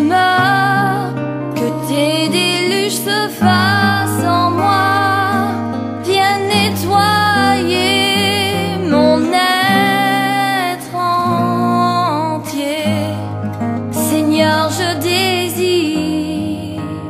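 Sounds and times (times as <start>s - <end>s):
woman singing with vibrato: 0.0s - 17.0s
accompaniment with sustained bass: 2.7s - 15.8s.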